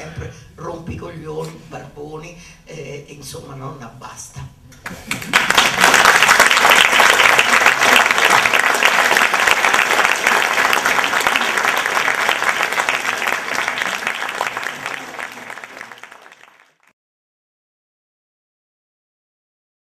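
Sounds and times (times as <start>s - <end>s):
audience applauding: 4.9s - 16.9s.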